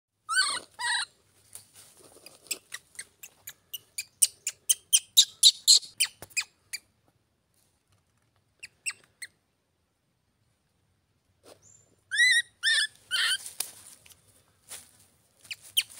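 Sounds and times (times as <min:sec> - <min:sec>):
baby monkey squealing: 0:00.3 - 0:01.1, 0:03.8 - 0:06.8, 0:12.1 - 0:13.4, 0:15.5 - 0:15.9.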